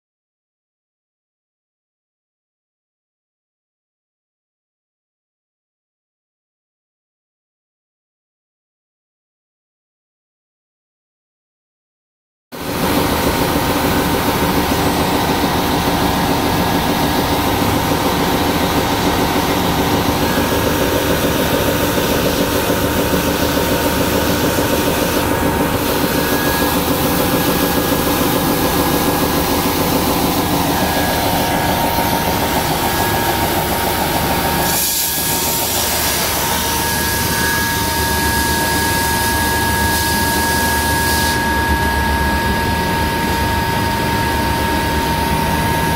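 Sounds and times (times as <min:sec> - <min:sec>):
deburring machine running: 0:12.6 - 0:45.9
steady high whine: 0:12.6 - 0:45.9.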